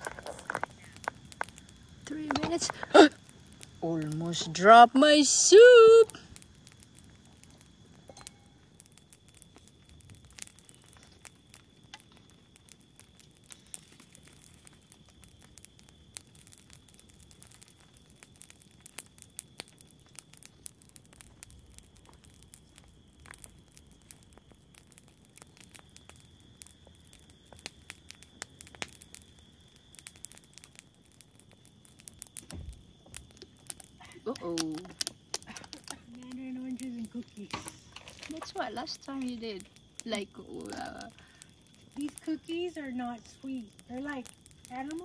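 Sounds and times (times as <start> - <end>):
soft rustles and crinkles: 0.0 - 3.8, 6.2 - 29.1, 30.2 - 45.0
faint steady high tone: 8.0 - 8.7.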